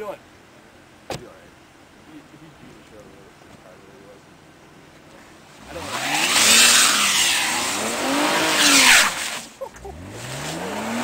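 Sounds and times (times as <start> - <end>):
car engine revving: 5.3 - 11.0
tyres spinning in snow hiss: 5.6 - 11.0.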